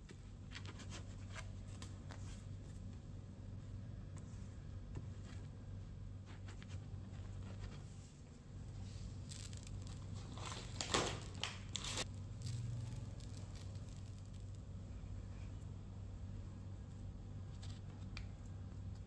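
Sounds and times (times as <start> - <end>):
sesame seeds pattering: 8.7 - 15.0.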